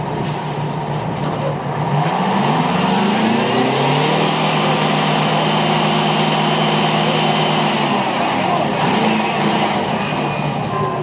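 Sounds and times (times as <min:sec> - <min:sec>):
engine revving: 0:01.7 - 0:11.0.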